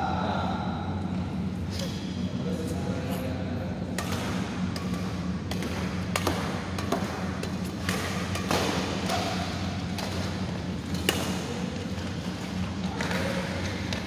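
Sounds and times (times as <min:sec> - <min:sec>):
steady low hum: 0:00.0 - 0:14.0
rackets hitting shuttlecock: 0:03.9 - 0:14.0.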